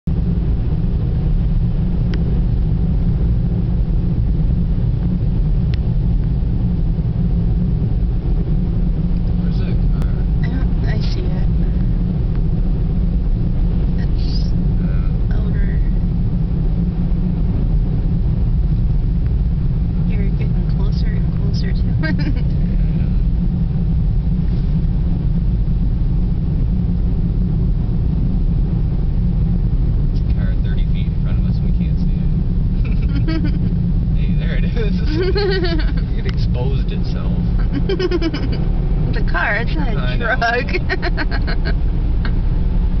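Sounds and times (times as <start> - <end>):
car driving on snowy road: 0.0 - 43.0.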